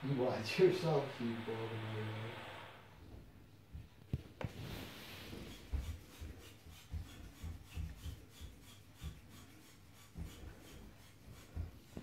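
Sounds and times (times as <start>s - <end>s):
snake sliding over floor: 4.4s - 12.0s.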